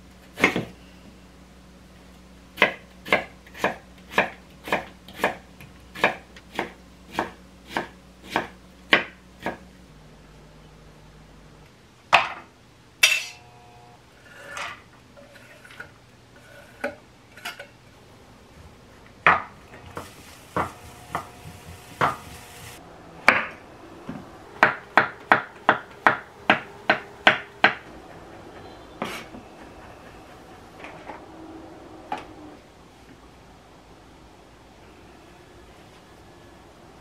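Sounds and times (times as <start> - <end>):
wooden spatula scraping frying pan: 14.2 - 17.6.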